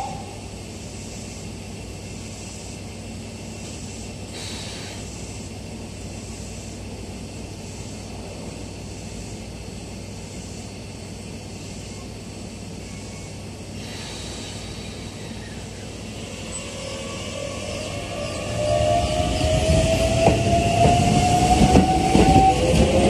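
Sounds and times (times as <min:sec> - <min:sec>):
electric train humming: 0:00.0 - 0:23.0
short air hiss: 0:04.3 - 0:05.5, 0:13.8 - 0:15.4.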